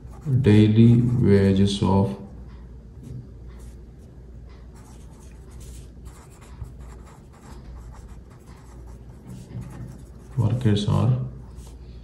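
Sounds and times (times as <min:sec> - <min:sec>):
faint low hum: 0:00.0 - 0:12.0
pen writing on paper: 0:04.8 - 0:10.6.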